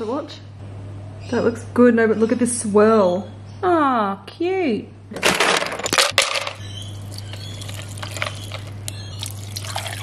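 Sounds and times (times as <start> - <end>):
ice cubes clattering: 5.3 - 10.0
milk pouring over ice: 7.0 - 10.0.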